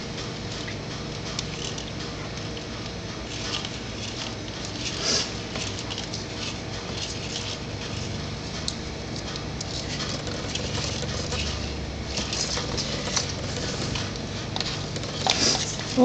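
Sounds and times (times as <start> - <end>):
claws scratching on plastic: 9.6 - 16.0.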